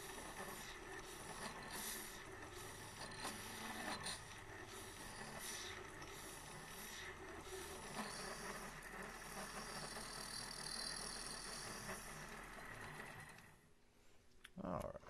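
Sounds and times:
lathe running with thin whine: 0.0s - 13.7s.

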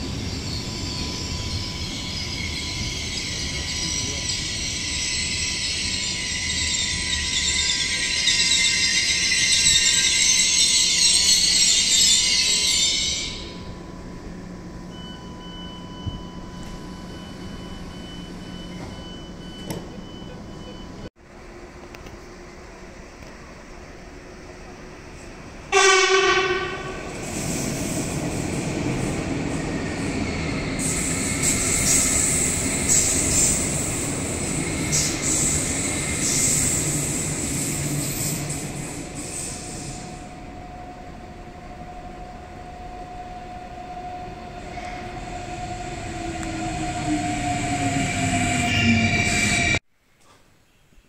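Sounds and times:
train rumbling on rails: 0.0s - 49.8s
train horn blast: 25.7s - 27.1s.

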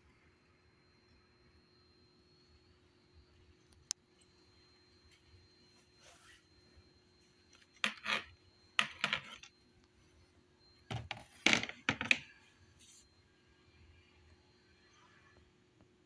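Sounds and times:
hard plastic knocking and clattering: 10.9s - 12.2s.

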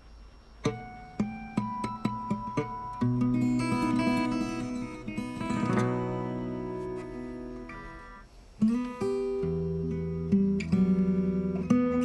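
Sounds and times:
acoustic guitar chords: 0.6s - 12.0s.

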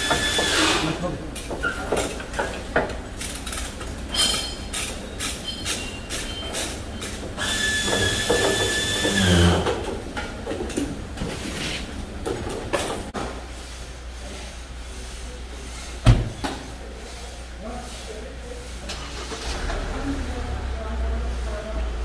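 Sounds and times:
hoist chain clinking and rattling: 3.2s - 7.2s
high metallic squeal: 4.1s - 9.7s.

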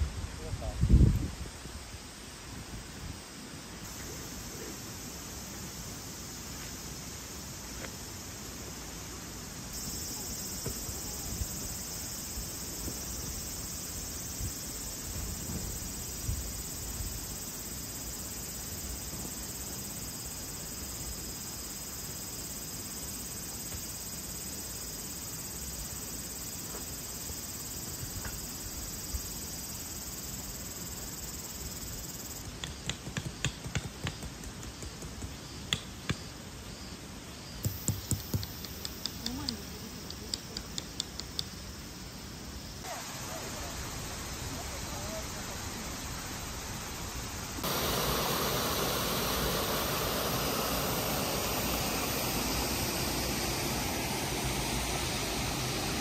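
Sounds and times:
high-pitched insect drone: 9.7s - 32.8s, 42.5s - 56.0s
sharp clicks and taps: 32.6s - 36.2s.

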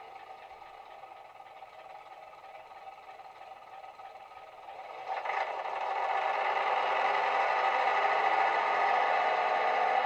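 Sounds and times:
diesel engine sound through small speakers: 0.0s - 10.0s.

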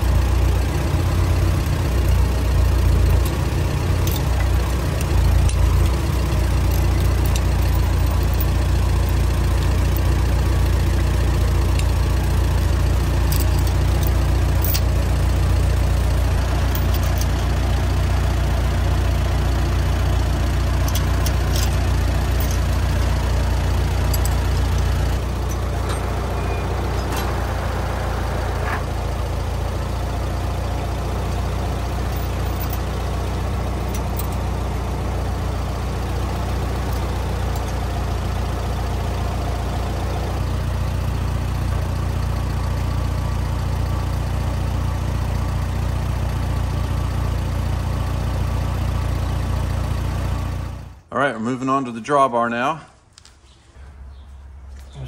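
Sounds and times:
tractor engine idling: 0.0s - 52.8s
light clinks: 16.6s - 17.4s, 20.8s - 23.2s, 23.9s - 27.3s, 31.2s - 33.0s.

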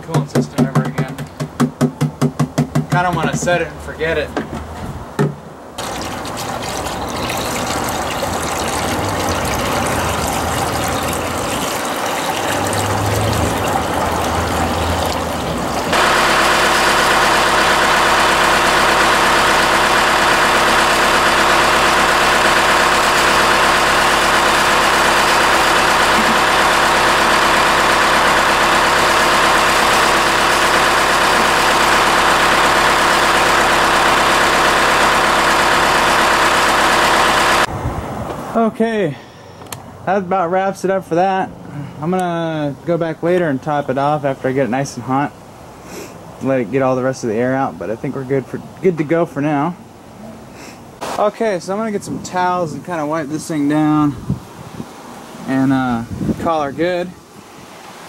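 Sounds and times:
water pouring into plastic bucket: 5.8s - 37.6s
diesel engine idling: 5.8s - 40.0s.

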